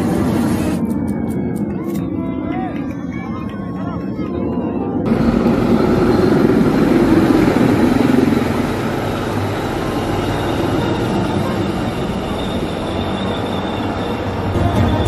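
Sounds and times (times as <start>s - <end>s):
helicopter rotor and engine rumble: 0.0s - 15.0s.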